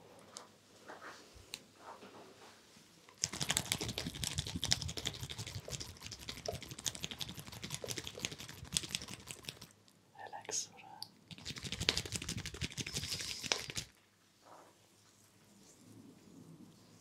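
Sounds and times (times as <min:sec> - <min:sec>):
fingers scratching through hair: 0:03.2 - 0:09.7, 0:11.3 - 0:14.0.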